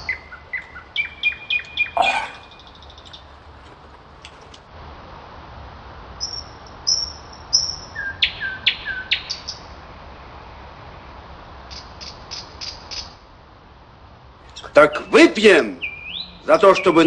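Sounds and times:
small birds chirping: 0.0 - 4.6, 6.2 - 9.7, 14.4 - 17.0
bird calls sweeping down: 1.0 - 2.9.

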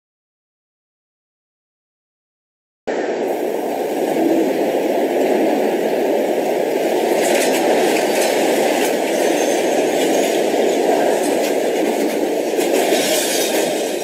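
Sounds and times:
loud rumbling noise: 2.9 - 14.0.

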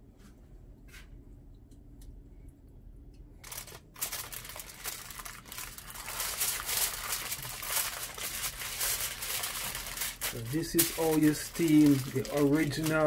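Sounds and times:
aluminium foil crinkling: 3.4 - 13.0.

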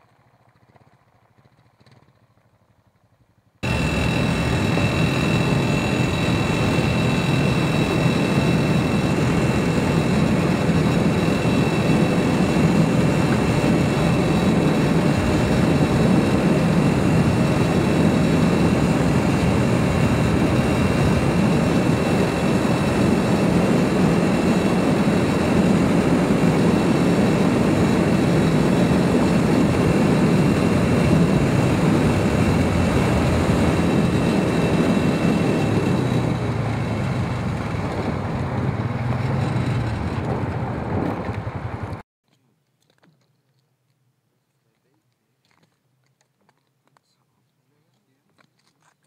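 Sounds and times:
atv engine running: 0.0 - 42.0
low rumble over ice: 3.6 - 42.0.

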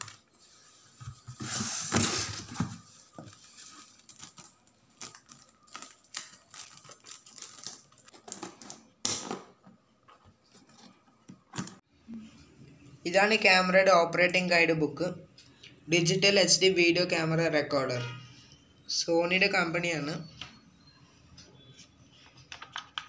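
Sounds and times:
plastic bag crinkling: 3.3 - 8.4.

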